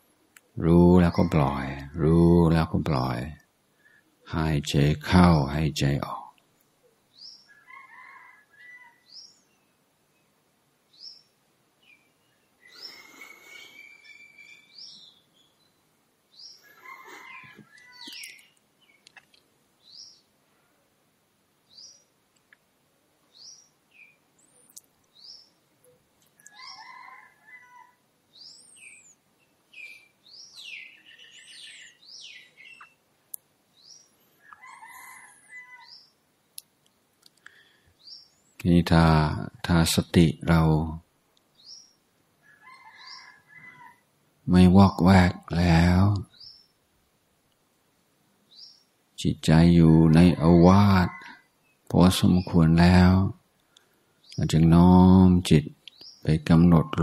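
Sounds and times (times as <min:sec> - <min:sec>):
birds calling: 0:00.4 - 0:06.2, 0:06.8 - 0:10.3, 0:10.9 - 0:20.4, 0:21.7 - 0:22.6, 0:23.2 - 0:33.1, 0:33.7 - 0:46.8, 0:48.4 - 0:57.0
bird high chirp: 0:10.9 - 0:19.1, 0:19.8 - 0:20.3, 0:21.7 - 0:22.1, 0:23.3 - 0:33.0, 0:33.8 - 0:36.2, 0:41.6 - 0:44.0, 0:44.8 - 0:46.8, 0:48.5 - 0:48.9, 0:50.2 - 0:53.3, 0:54.2 - 0:57.0.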